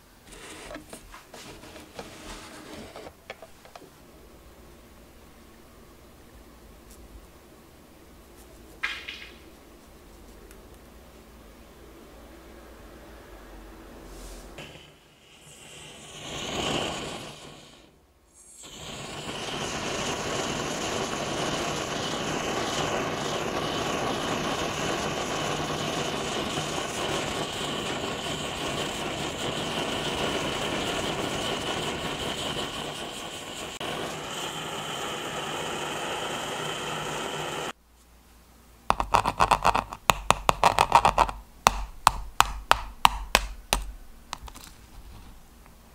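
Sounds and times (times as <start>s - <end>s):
blowtorch flame hissing: 0.0s - 3.9s, 14.0s - 37.8s
spoon cracking sugar crust: 38.9s - 44.8s.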